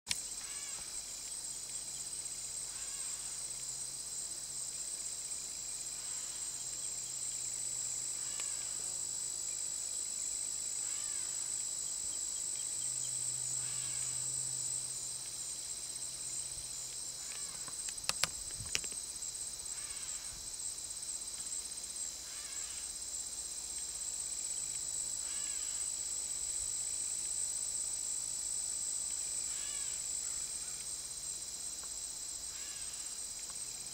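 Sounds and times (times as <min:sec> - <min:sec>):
crickets and insects chirping: 0:00.1 - 0:33.9
sharp clicks: 0:17.3 - 0:19.0.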